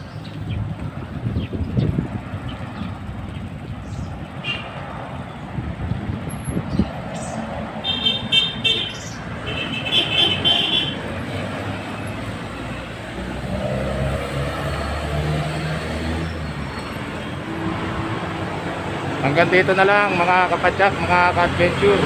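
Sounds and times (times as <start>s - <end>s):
motorcycle engine humming: 0.0s - 21.8s
street traffic: 0.0s - 22.0s.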